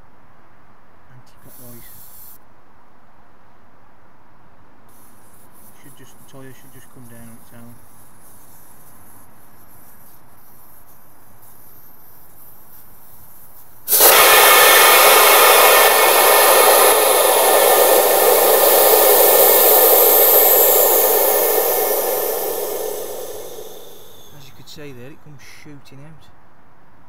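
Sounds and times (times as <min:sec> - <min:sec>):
air hissing from tyre valve: 0:01.4 - 0:02.4, 0:04.9 - 0:24.7.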